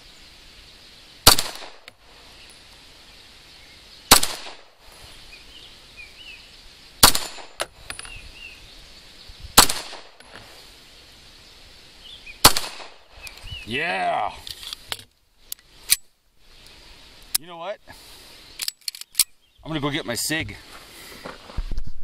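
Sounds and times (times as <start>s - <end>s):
pistol shots: 1.2s - 1.9s, 4.1s - 4.7s, 7.0s - 7.7s, 9.6s - 10.2s, 12.4s - 13.0s.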